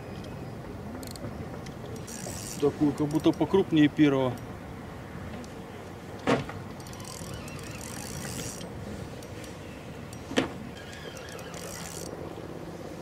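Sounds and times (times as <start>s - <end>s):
fishing reel whirring: 2.0s - 3.2s, 6.8s - 12.1s.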